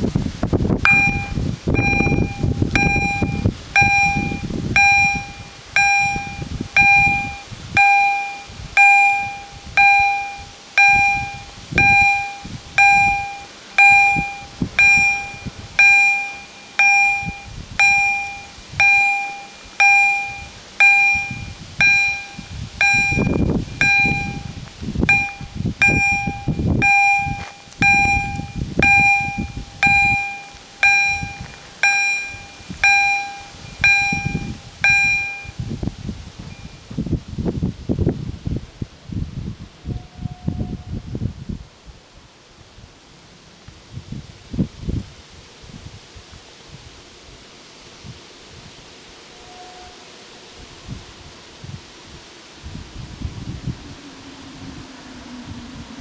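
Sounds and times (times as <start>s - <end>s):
level crossing warning bells: 0.8s - 36.9s.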